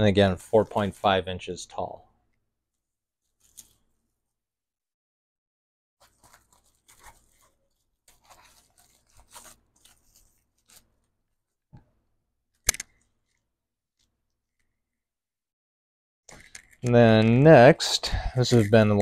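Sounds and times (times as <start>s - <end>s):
plastic packaging crinkling: 6.0s - 11.1s
sharp click: 12.6s - 13.0s.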